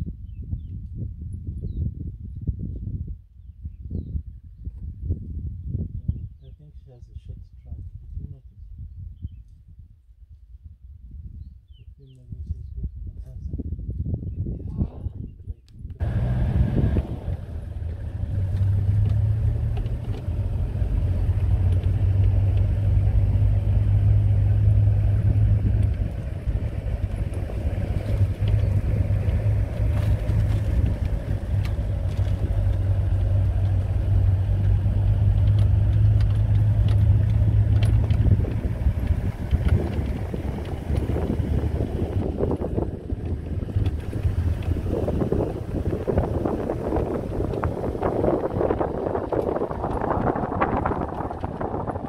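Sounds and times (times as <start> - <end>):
wind noise on microphone: 0.0 - 52.0
vehicle engine droning: 16.0 - 52.0.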